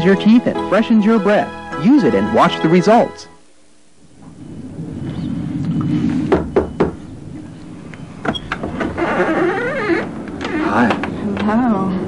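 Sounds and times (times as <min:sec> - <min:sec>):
low background rumble: 0:03.6 - 0:12.0
knocks on door: 0:06.3 - 0:07.0.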